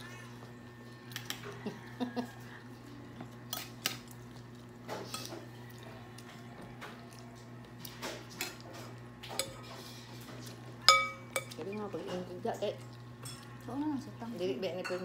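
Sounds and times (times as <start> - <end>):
cutlery clinking on dishes: 8.0 - 9.8, 10.8 - 11.6.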